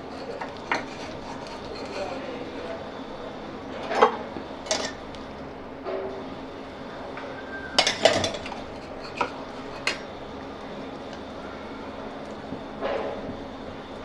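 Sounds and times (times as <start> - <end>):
kitchen utensils clinking: 0.0 - 2.2, 3.8 - 5.0, 7.7 - 10.1.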